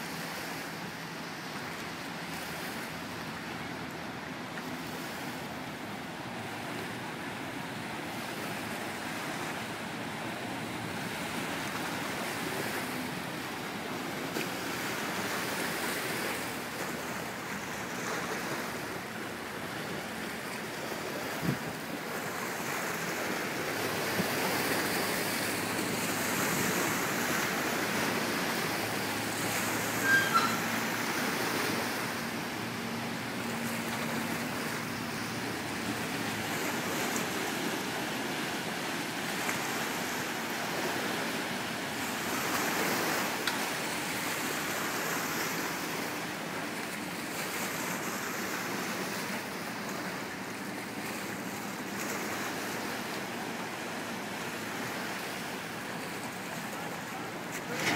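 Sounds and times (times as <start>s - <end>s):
river water churning: 0.0s - 57.9s
short high chirps: 30.0s - 30.8s.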